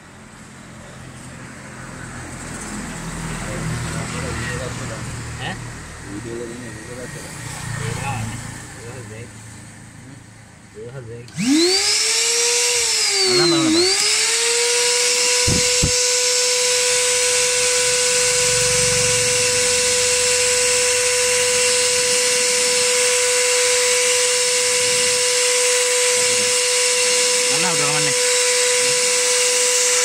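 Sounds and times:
electric motor whining: 11.3 - 30.0.

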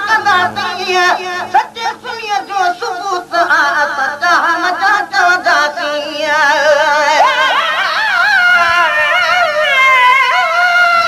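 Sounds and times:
person singing devotional song: 0.0 - 11.0.

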